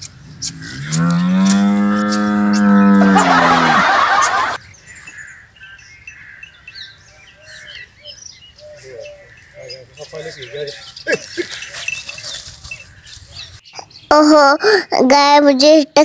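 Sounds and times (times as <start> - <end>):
cow mooing: 0.4 - 4.6.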